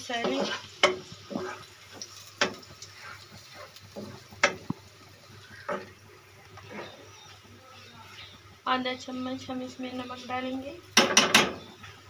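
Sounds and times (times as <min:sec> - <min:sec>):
spatula scraping pan: 0:00.0 - 0:04.7, 0:05.4 - 0:06.0, 0:06.6 - 0:07.3
faint frying sizzle: 0:00.0 - 0:12.0
spatula knocking against pan: 0:11.0 - 0:11.6.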